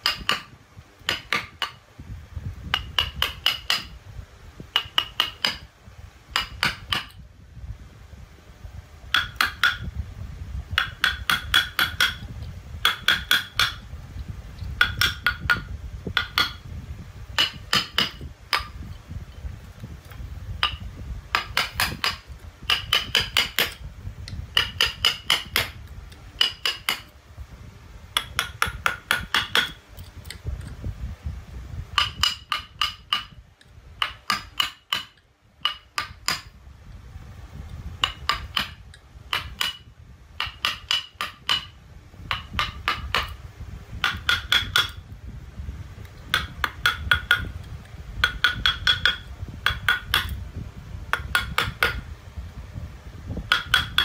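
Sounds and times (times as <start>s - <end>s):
mallet tapping chisel into wood: 0.0s - 1.8s, 2.7s - 4.0s, 4.7s - 5.7s, 6.3s - 7.2s, 9.1s - 9.9s, 10.8s - 13.8s, 14.8s - 16.6s, 17.4s - 18.8s, 20.6s - 23.8s, 24.5s - 25.8s, 26.4s - 27.1s, 28.2s - 30.4s, 31.9s - 33.4s, 34.0s - 36.6s, 38.0s - 39.8s, 40.4s - 43.4s, 44.0s - 45.0s, 46.3s - 47.6s, 48.2s - 50.4s, 51.1s - 52.0s, 53.5s - 54.0s.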